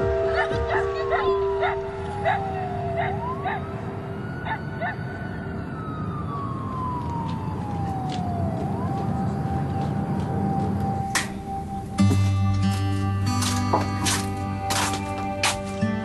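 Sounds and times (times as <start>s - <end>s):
siren wailing: 0.0s - 12.0s.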